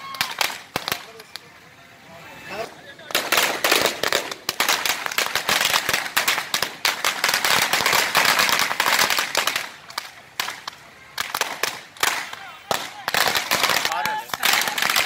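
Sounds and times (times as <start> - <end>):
firecrackers banging: 0.0 - 1.8, 2.5 - 15.0.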